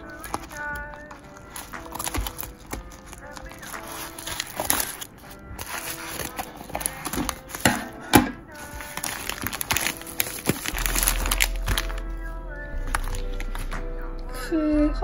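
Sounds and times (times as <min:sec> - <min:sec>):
plastic mailer bag crinkling: 0:00.0 - 0:07.7, 0:08.5 - 0:12.1.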